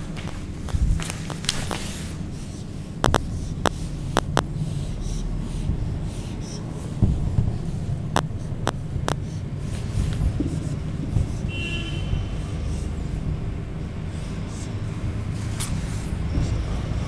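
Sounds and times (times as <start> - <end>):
low room rumble: 0.0 - 17.0
marker scratching on whiteboard: 0.6 - 17.0
marker tip ticking on board: 1.8 - 5.3.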